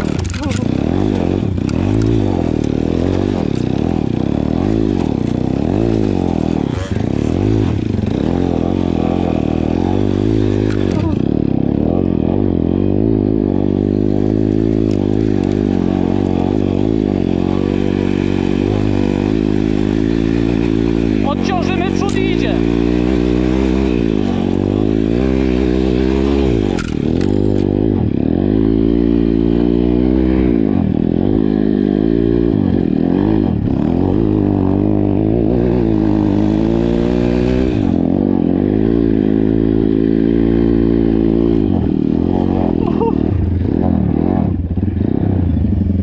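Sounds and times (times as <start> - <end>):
motorbike engine revving: 0.0 - 46.0.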